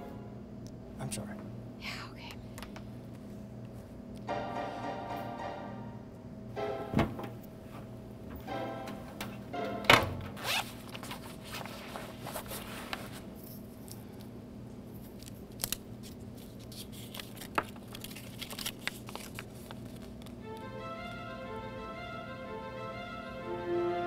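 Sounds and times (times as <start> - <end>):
low steady hum: 0.0 - 24.0
paper crinkling: 10.5 - 13.3, 15.0 - 20.4.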